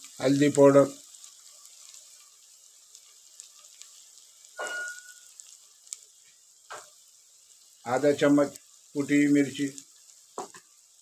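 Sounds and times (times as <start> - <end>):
masala sizzling in oil: 0.0 - 11.0
metallic clink: 4.6 - 5.3.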